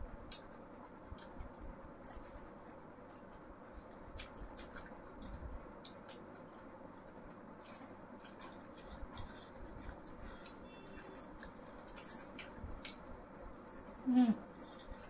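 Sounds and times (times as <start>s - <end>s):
chewing: 2.2s - 13.1s.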